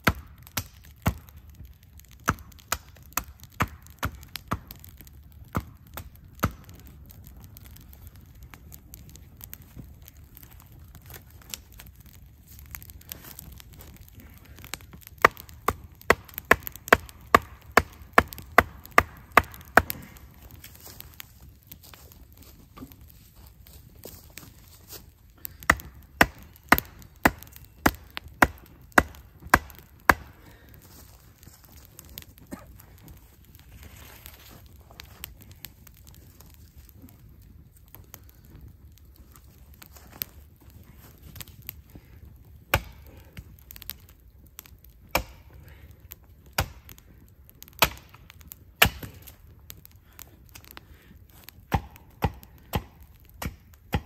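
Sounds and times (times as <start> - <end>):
axe chopping wood: 15.2 - 20.0, 25.7 - 30.3, 47.8 - 48.1, 48.8 - 49.1, 51.7 - 54.0.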